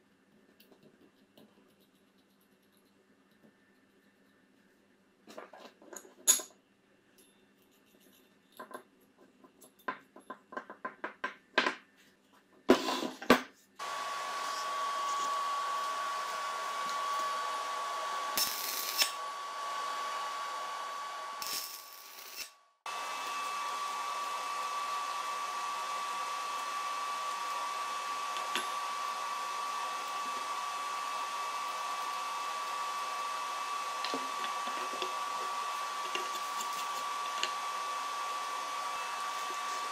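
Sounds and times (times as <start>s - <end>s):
arc welder hissing: 13.8s - 39.9s.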